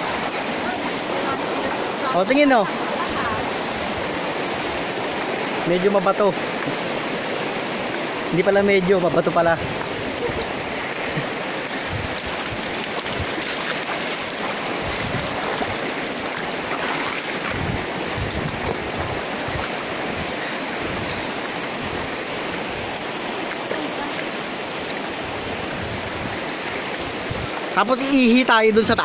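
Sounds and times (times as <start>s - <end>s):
river rushing over rocks: 0.0s - 29.0s
wind buffeting microphone: 9.5s - 23.4s, 25.0s - 27.7s.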